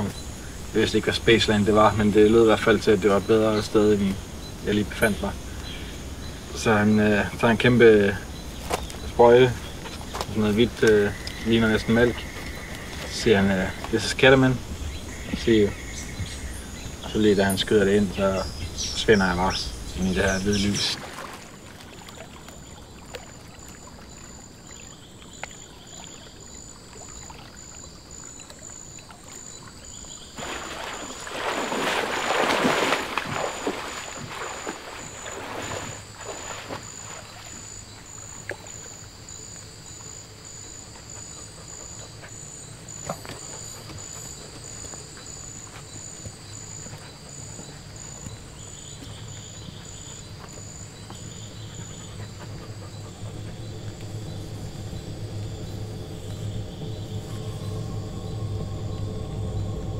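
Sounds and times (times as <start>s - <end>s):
insects trilling: 0.0s - 59.9s
water splashing from wading: 19.0s - 57.4s.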